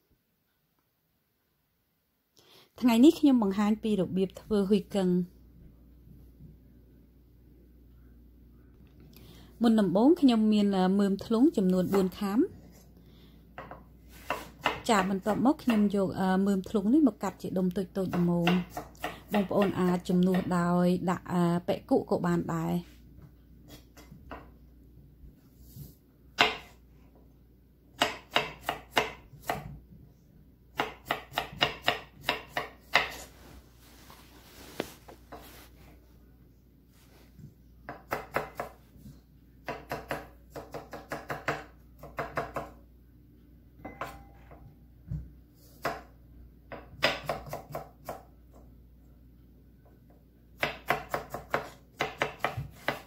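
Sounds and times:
knife chopping on wooden board: 0:13.6 - 0:15.9, 0:26.4 - 0:26.8, 0:28.0 - 0:29.8, 0:30.8 - 0:33.3, 0:37.9 - 0:38.8, 0:39.6 - 0:42.8, 0:46.7 - 0:48.3, 0:50.6 - 0:53.0.

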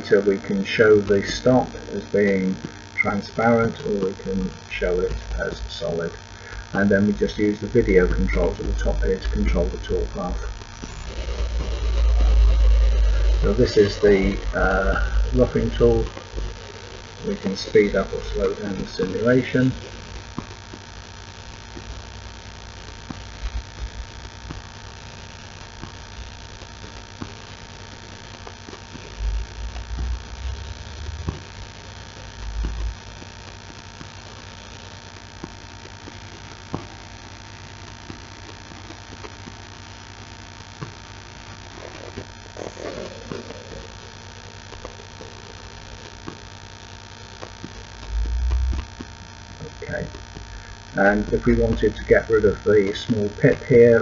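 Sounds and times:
electrical hum and hiss: 0:00.0 - 0:54.0
low thumps: 0:47.6 - 0:50.9.

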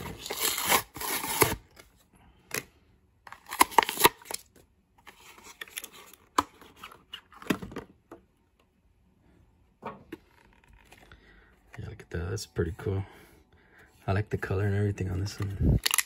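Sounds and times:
plastic packaging crackling: 0:15.8 - 0:16.0.

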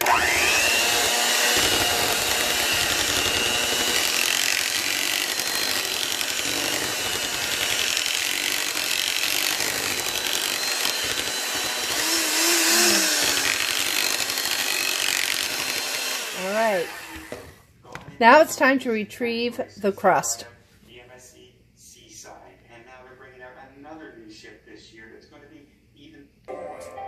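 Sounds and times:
electric mixer running: 0:00.0 - 0:17.6.

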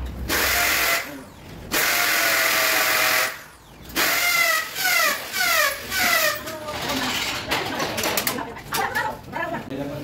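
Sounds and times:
power drill whining: 0:04.0 - 0:06.4.

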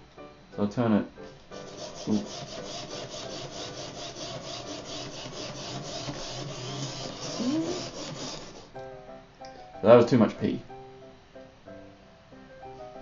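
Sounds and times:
geared motors whirring back and forth: 0:01.6 - 0:08.8.

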